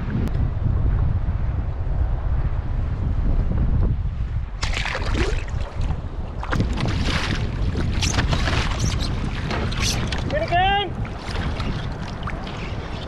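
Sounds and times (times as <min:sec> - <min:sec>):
wind buffeting microphone: 0:00.0 - 0:13.0
water splashes: 0:04.6 - 0:13.0.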